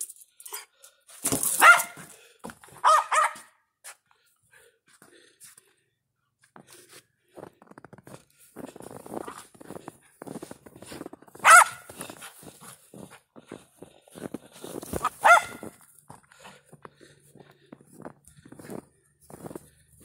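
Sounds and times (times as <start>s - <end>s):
small dog yapping: 1.6s - 2.0s, 2.8s - 3.5s, 11.4s - 11.9s, 15.0s - 15.7s
paws crunching in snow: 6.4s - 20.0s.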